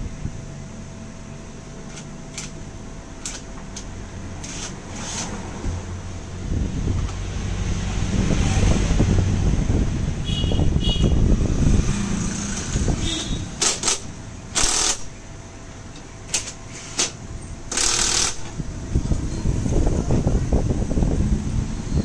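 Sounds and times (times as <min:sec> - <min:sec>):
impact driver rattling: 0:13.6 - 0:15.1, 0:16.4 - 0:18.6.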